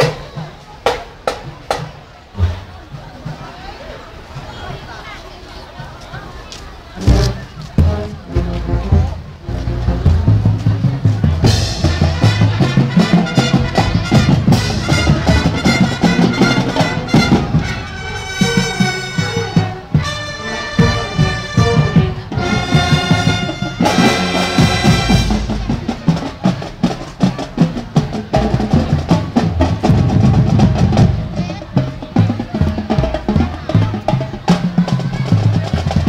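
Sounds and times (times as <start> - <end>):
drum line: 0.0 - 3.6, 7.0 - 36.0
marching band brass: 6.9 - 36.0.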